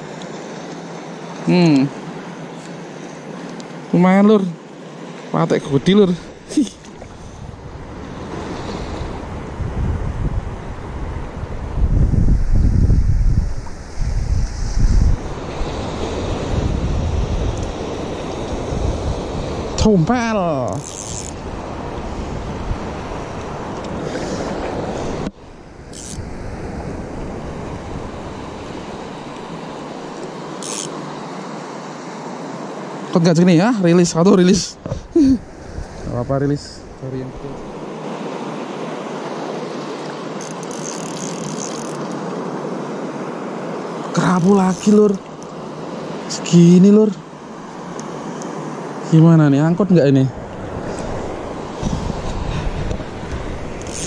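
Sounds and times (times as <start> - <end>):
small waves lapping: 0.0 - 9.6, 15.2 - 34.0, 34.6 - 49.2
choppy sea water washing: 4.7 - 11.8, 13.4 - 54.0
wind buffeting microphone: 5.8 - 30.3, 34.5 - 37.9, 50.2 - 54.0.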